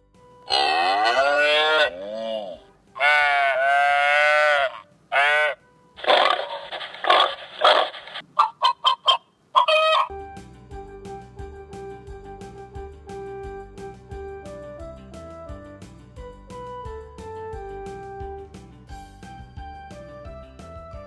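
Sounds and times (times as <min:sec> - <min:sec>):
recorded cow moos: 0:00.5 - 0:05.6
recorded sheep bleats: 0:00.5 - 0:08.0
recorded hen clucks: 0:03.0 - 0:10.1.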